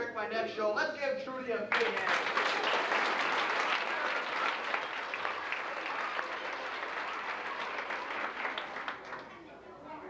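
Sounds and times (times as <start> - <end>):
children applauding: 1.7 - 9.4.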